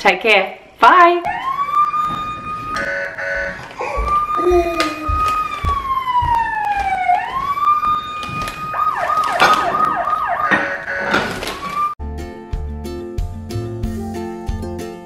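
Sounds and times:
electronic toy siren: 1.3 - 12.0.

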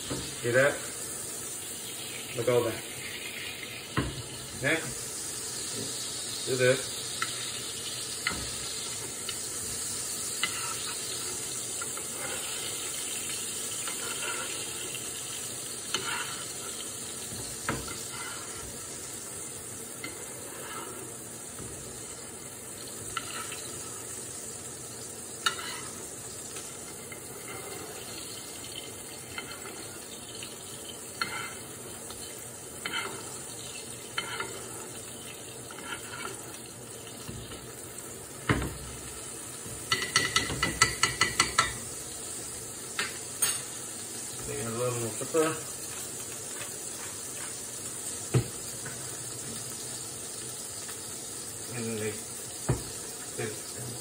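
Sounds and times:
patty sizzling in a skillet: 0.0 - 54.0
spoon scraping and tapping pan: 8.2 - 8.7, 10.3 - 13.0, 15.9 - 18.8, 23.0 - 23.8, 25.4 - 28.1, 31.2 - 31.6, 32.8 - 33.4, 34.1 - 34.9, 35.7 - 36.6, 39.8 - 41.9.

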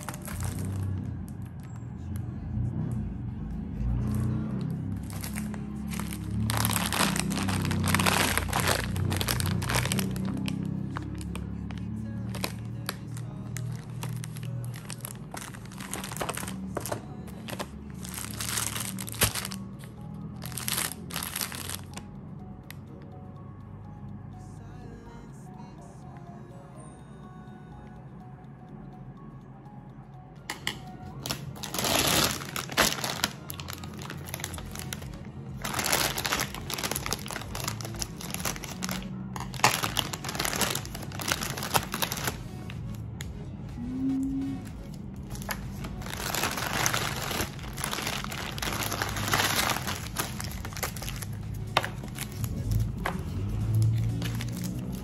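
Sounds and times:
plastic wrappers crinkling: 0.0 - 0.9, 5.0 - 22.0, 31.2 - 42.8, 45.3 - 55.0
scissors cutting plastic: 0.0 - 0.9, 5.0 - 19.7, 30.5 - 42.8, 45.3 - 55.0
background music: 0.0 - 55.0.

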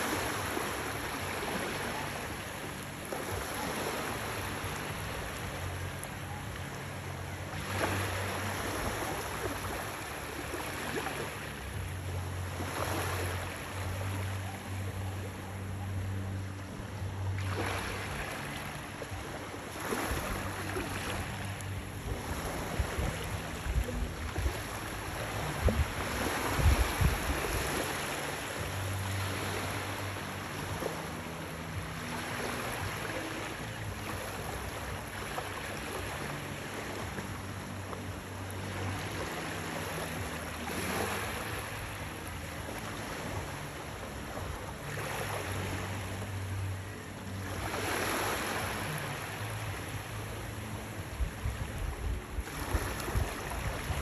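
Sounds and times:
small waves washing: 0.0 - 54.0
wind buffeting microphone: 21.7 - 27.7.

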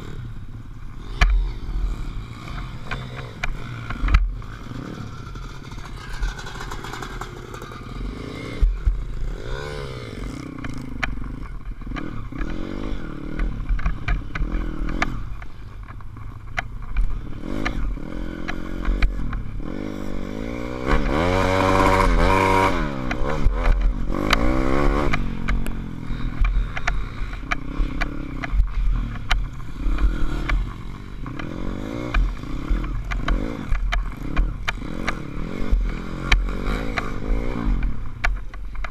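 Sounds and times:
motorbike engine revving: 0.0 - 38.9
rattles and knocks over bumps: 2.5 - 9.6, 20.9 - 38.9.

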